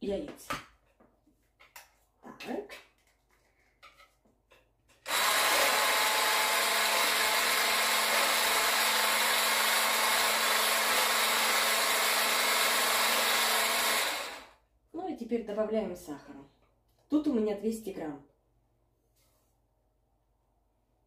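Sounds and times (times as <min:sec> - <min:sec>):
electric whisk motor whirring: 0:05.0 - 0:14.6.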